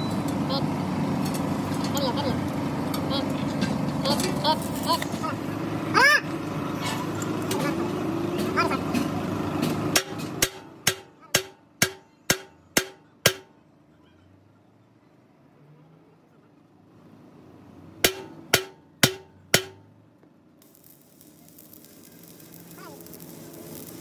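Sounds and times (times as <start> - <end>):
hammer striking steel: 9.6 - 13.6, 18.0 - 19.9.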